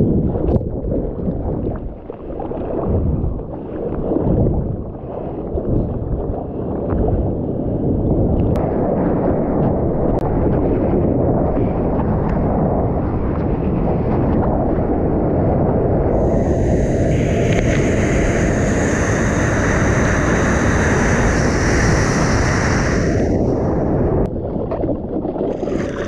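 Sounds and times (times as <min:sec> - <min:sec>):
wind buffeting camera: 0:00.0 - 0:26.0
rushing water: 0:16.1 - 0:24.3, 0:25.4 - 0:26.0
whitewater spray hiss: 0:16.2 - 0:24.0, 0:25.6 - 0:26.0.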